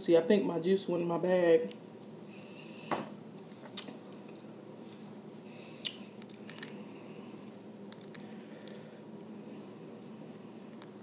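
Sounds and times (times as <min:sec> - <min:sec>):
steady low hum: 0:00.0 - 0:11.0
person eating: 0:05.6 - 0:09.0
shells clicking and squishing: 0:07.9 - 0:08.8.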